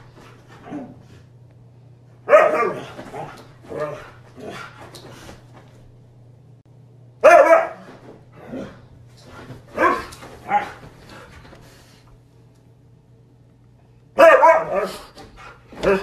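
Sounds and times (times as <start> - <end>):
dog barking: 2.3 - 4.0, 7.2 - 7.9, 9.8 - 10.8, 14.2 - 15.1.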